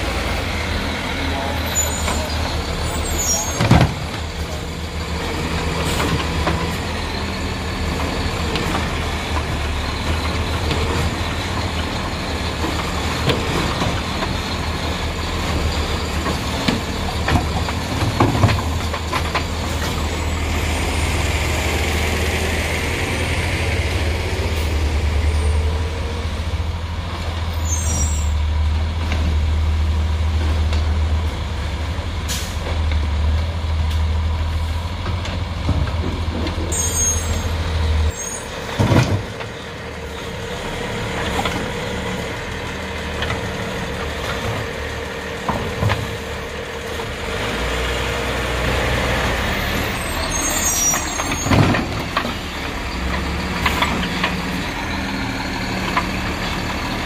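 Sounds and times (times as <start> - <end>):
garbage truck engine droning: 0.0 - 57.0
hydraulic arm dumping cart: 33.8 - 57.0.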